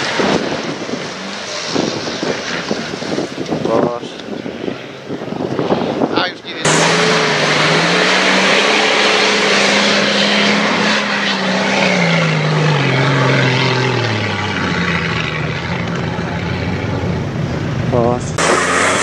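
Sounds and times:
diesel engine working hard: 6.6 - 19.0.

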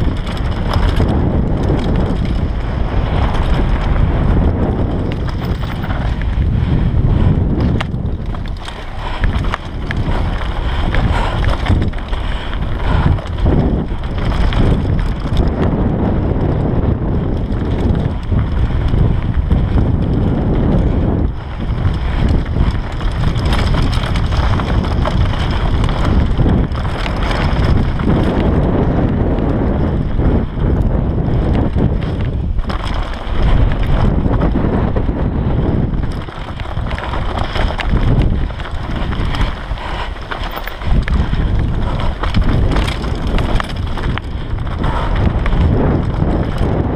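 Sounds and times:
wind buffeting microphone: 0.0 - 46.9
bike rattling knocks: 35.7 - 46.9.

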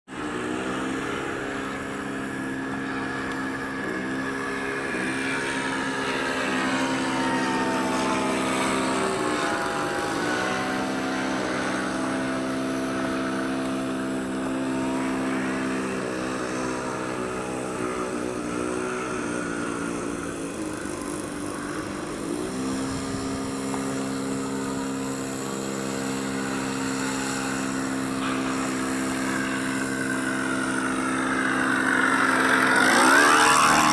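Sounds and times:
propeller plane engine droning: 0.1 - 33.9.

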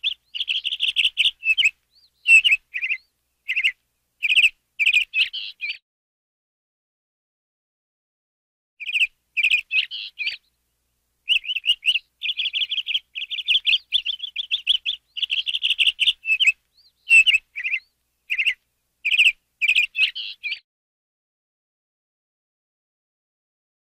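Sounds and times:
canary singing: 0.0 - 5.8, 8.8 - 10.6, 11.2 - 20.6.

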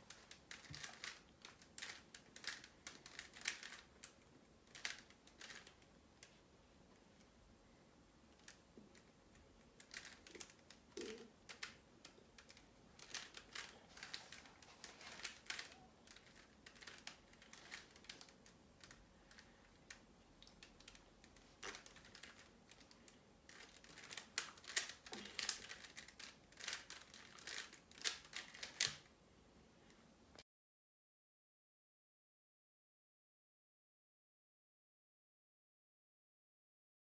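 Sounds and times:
puzzle cube clicking as turned: 0.1 - 6.3, 9.8 - 29.1.

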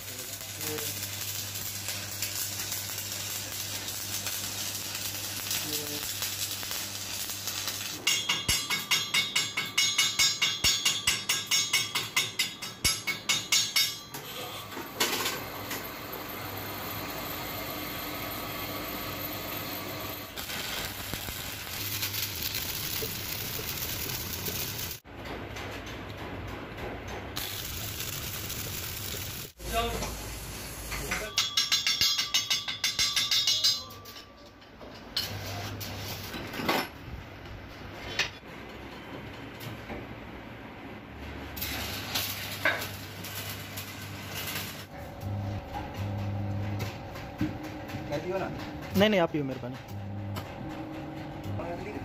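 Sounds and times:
arc welding crackling: 0.0 - 10.0, 15.4 - 25.0, 27.4 - 31.3, 41.5 - 47.2, 48.1 - 50.5.

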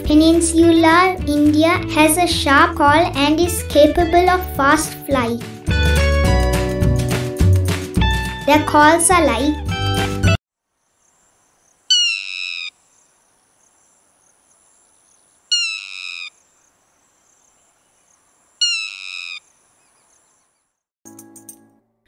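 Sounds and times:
lapwing calling: 10.9 - 20.7.

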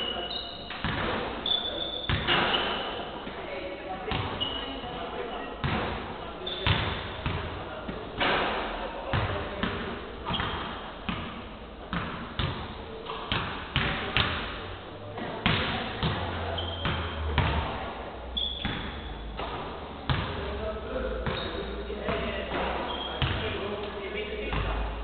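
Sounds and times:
short high squeaks: 0.0 - 0.8, 1.4 - 3.1, 4.3 - 4.8, 6.4 - 6.7, 16.6 - 17.2, 18.4 - 19.3, 22.8 - 23.2
basketballs bouncing on hardwood: 0.7 - 1.4, 2.1 - 3.4, 4.1 - 4.4, 5.6 - 6.0, 6.6 - 7.5, 9.1 - 12.7, 13.3 - 14.5, 15.4 - 17.8, 18.6 - 20.4, 21.2 - 23.5.

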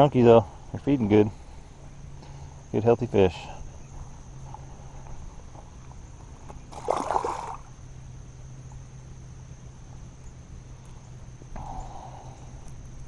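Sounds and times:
water splash: 6.7 - 7.7.

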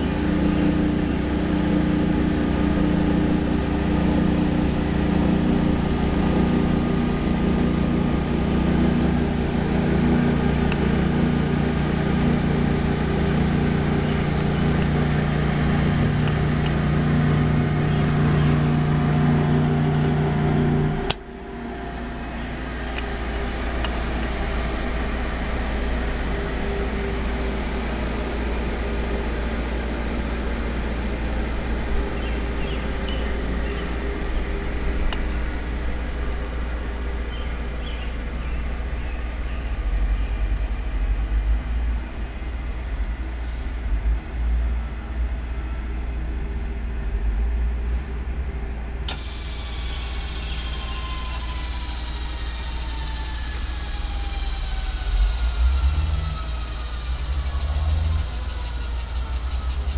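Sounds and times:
grinder humming: 0.0 - 35.8, 49.1 - 59.9.

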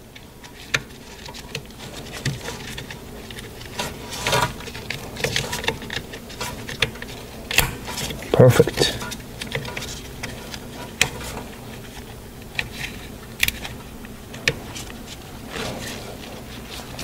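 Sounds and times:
sharp click: 7.6 - 7.8.

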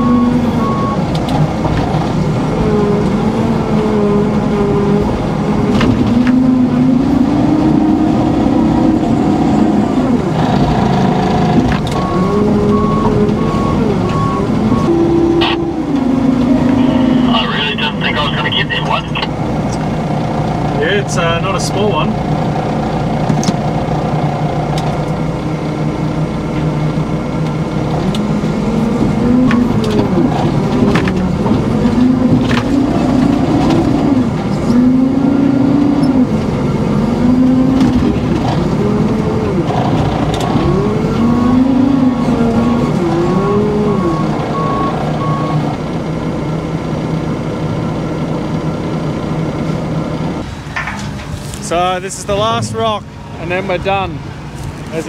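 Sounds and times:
reversing alarm beeping: 0.0 - 1.0, 12.0 - 19.1, 41.2 - 45.6
engine revving: 0.0 - 47.2, 48.0 - 55.0
diesel engine drone: 0.0 - 55.0.

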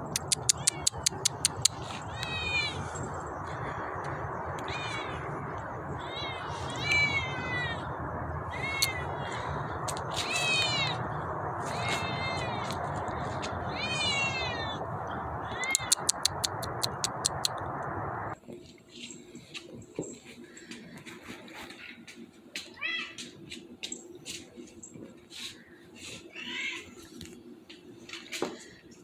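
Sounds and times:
quick clicks: 0.0 - 2.3, 15.7 - 17.8
kitten meowing: 0.2 - 2.8, 6.0 - 7.8, 8.5 - 9.1, 10.2 - 11.0, 13.7 - 14.8.

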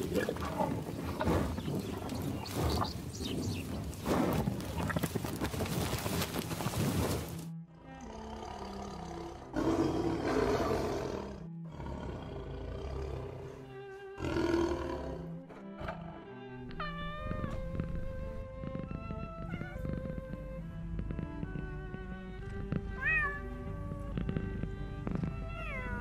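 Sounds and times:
tiger growling: 0.0 - 6.0, 7.8 - 26.0
rumble of hooves on dry grass: 0.0 - 7.5, 16.7 - 26.0
background music: 5.8 - 26.0.

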